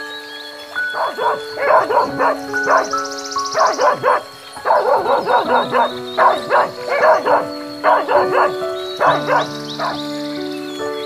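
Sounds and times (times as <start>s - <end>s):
background music with held notes: 0.0s - 11.0s
dog barking: 0.9s - 10.0s.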